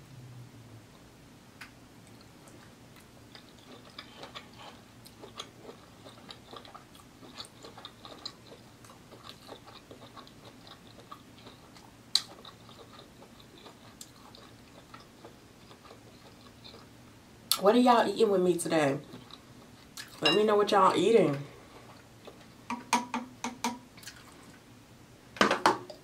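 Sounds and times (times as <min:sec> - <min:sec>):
person chewing wet food: 0:02.0 - 0:17.6, 0:19.0 - 0:20.3, 0:21.6 - 0:22.7, 0:24.0 - 0:24.7.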